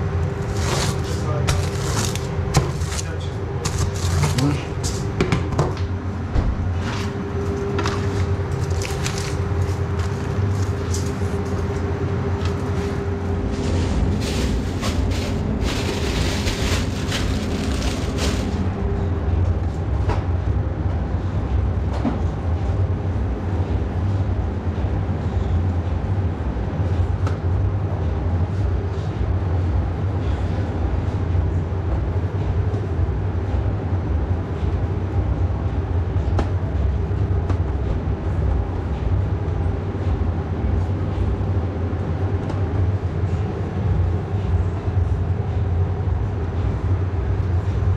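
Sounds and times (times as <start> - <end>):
kitchen machine hum: 0.0 - 20.4.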